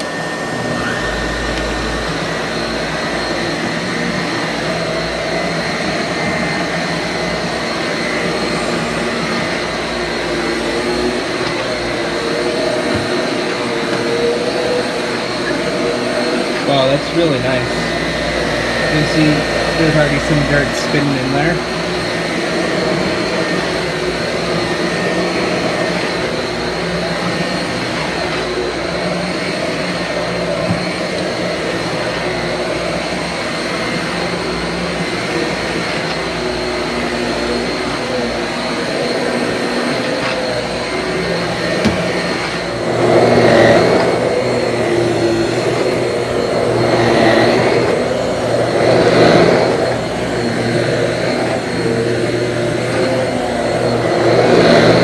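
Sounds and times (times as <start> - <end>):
vacuum cleaner on carpet: 0.0 - 55.0.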